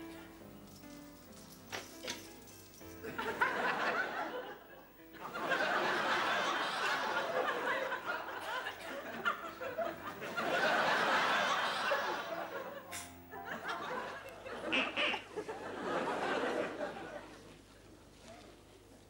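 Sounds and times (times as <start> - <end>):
studio audience laughing: 3.0 - 17.5.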